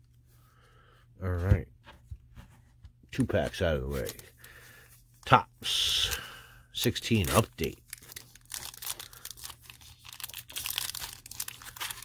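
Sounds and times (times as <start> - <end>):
plastic wrapper tearing and crinkling: 7.1 - 12.0.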